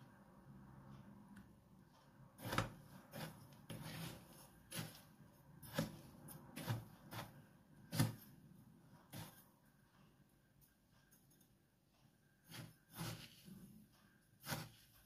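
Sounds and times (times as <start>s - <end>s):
metal spoon scraping plastic bowl: 2.3s - 8.4s, 9.0s - 9.5s, 12.4s - 15.0s.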